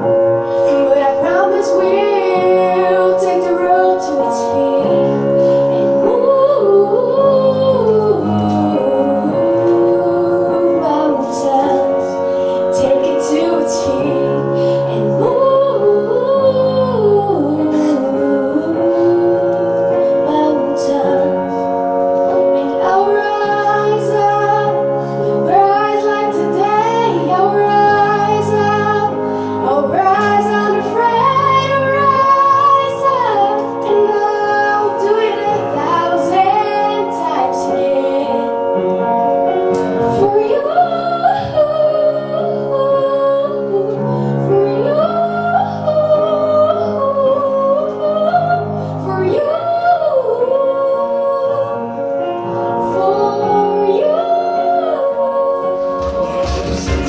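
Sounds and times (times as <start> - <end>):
girl singing into a microphone: 0.0 - 57.0
sustained chords: 55.0 - 57.0
bass line: 55.6 - 57.0.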